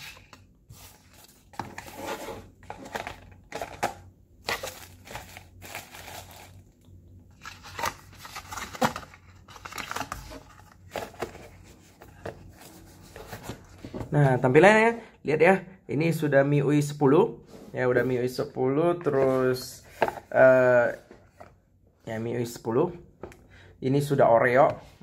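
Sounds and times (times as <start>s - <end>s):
packaging crinkling and rustling: 0.0s - 13.7s.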